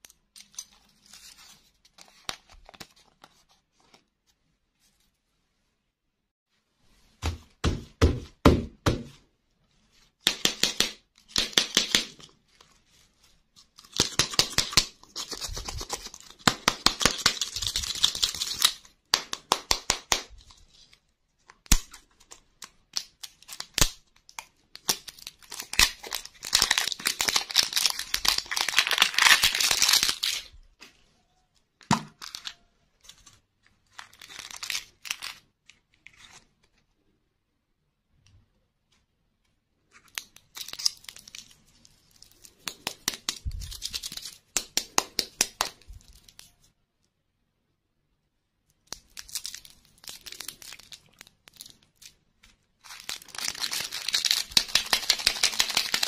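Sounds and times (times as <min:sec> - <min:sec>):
hands tapping hard plastic balls: 0:10.2 - 0:12.2, 0:16.4 - 0:17.6, 0:19.1 - 0:20.4, 0:44.5 - 0:45.9
plastic wrapper tearing: 0:21.6 - 0:30.5, 0:32.2 - 0:35.4, 0:40.0 - 0:44.6, 0:48.9 - 0:52.2, 0:52.8 - 0:56.0.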